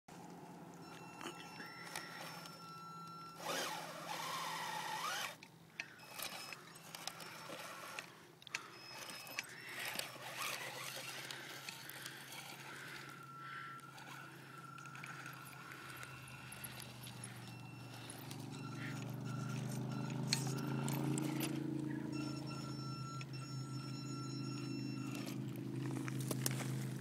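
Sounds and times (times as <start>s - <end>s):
electric motor whining: 0.8s - 27.0s
tyres crunching on stones: 24.8s - 27.0s.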